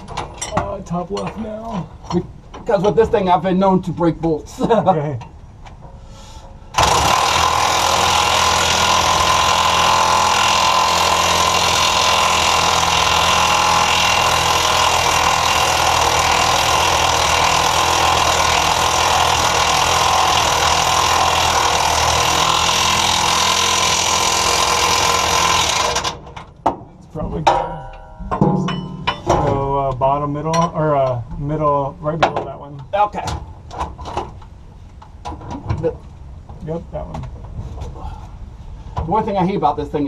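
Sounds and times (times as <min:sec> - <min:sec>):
impact wrench hammering: 0:06.8 - 0:26.8, 0:27.5 - 0:29.6.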